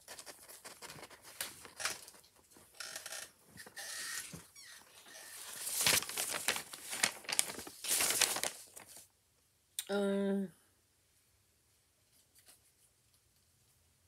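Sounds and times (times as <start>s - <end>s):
paper rustling: 0.0s - 2.7s, 5.0s - 9.1s.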